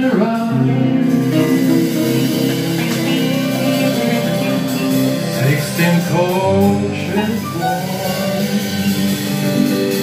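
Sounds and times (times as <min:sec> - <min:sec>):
blues band playing: 0:00.0 - 0:10.0
electric guitar: 0:00.0 - 0:10.0.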